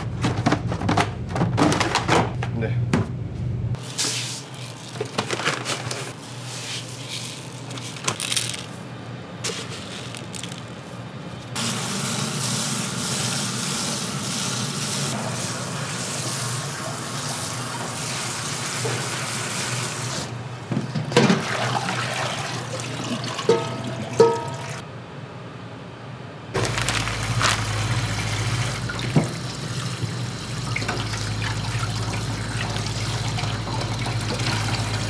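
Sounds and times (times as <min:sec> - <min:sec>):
water running from kitchen tap: 0:11.6 - 0:20.3, 0:21.3 - 0:24.8, 0:27.0 - 0:35.0.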